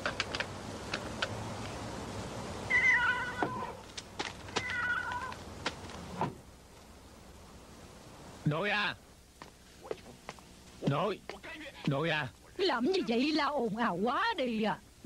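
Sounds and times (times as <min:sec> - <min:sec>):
cat meowing: 0:02.7 - 0:03.8, 0:04.5 - 0:05.4.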